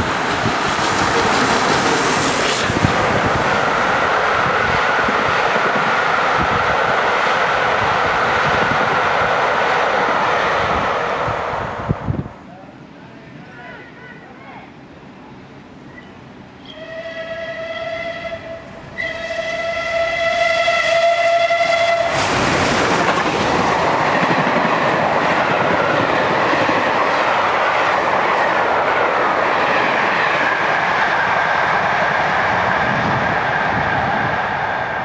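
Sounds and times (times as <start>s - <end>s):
train wheels rushing on rails: 0.0s - 12.4s, 15.8s - 35.0s
steam locomotive whistle blasts: 16.0s - 22.3s.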